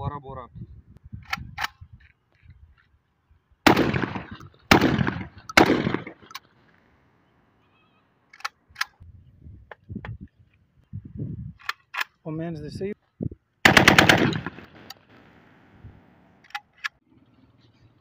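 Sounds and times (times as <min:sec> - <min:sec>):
shotgun shots echoing: 0:03.6 - 0:06.6, 0:13.6 - 0:15.4
metallic gun handling clicks: 0:08.3 - 0:09.0, 0:11.6 - 0:12.2, 0:16.4 - 0:17.0.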